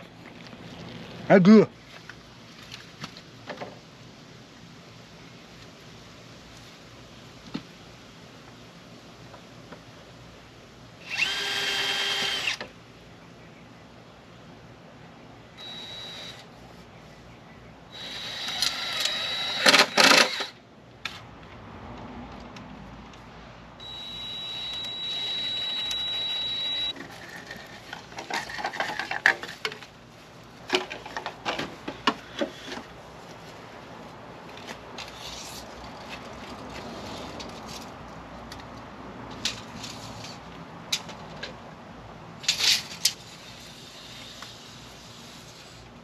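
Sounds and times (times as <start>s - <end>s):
steady high whine: 15.4s - 20.6s, 23.8s - 27.0s.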